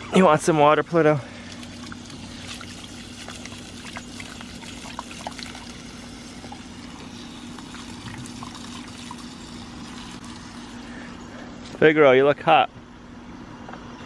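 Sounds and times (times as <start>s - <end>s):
water pouring from hose onto grass: 1.0s - 10.8s
dog drinking: 1.4s - 10.6s.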